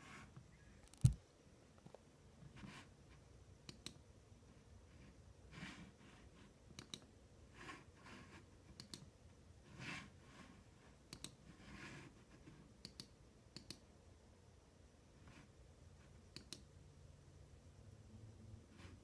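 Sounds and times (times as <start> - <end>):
mouse button clicks: 0.8 - 1.2.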